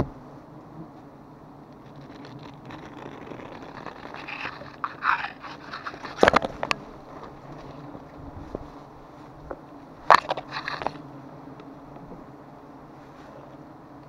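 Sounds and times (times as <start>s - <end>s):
knife cutting through honeycomb: 1.8s - 6.7s.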